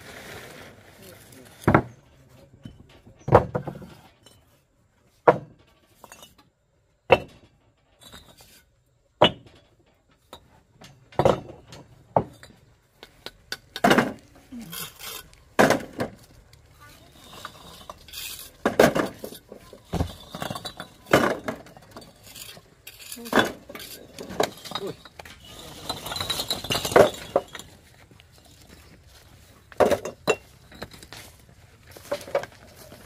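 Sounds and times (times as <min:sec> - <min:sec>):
hard objects clinking together: 0:17.1 - 0:27.8.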